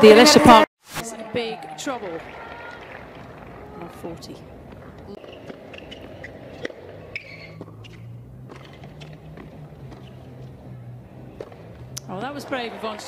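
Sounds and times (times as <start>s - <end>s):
low arena hum: 0.1s - 13.0s
rackets striking tennis ball: 4.6s - 13.0s.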